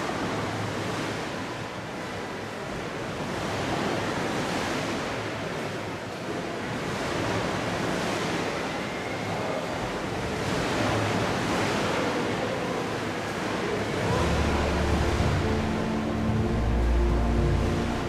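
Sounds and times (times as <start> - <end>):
water rushing and splashing: 0.0 - 18.0
music: 14.1 - 18.0.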